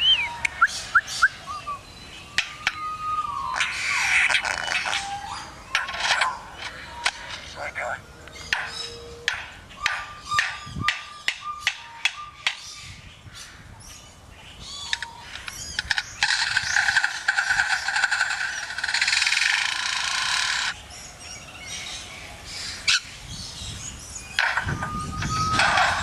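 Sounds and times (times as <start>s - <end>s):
swooping whistles: 0.0s - 1.8s, 24.6s - 26.0s
harsh buzzing bird mimicry: 0.0s - 12.5s.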